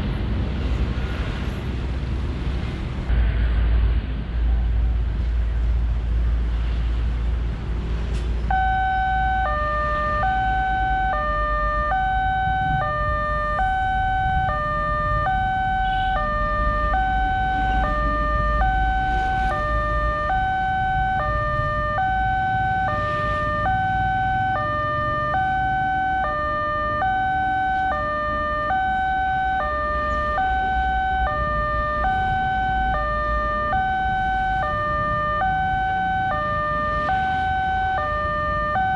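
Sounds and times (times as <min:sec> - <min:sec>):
two-tone crossing alarm: 0:08.5 - 0:38.9.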